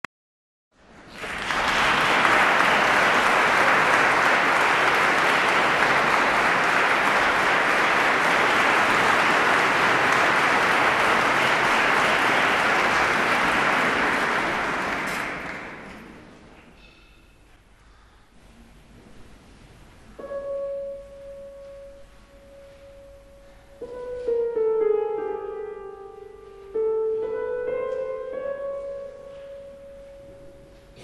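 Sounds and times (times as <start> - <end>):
audience applauding: 0.8 - 16.6.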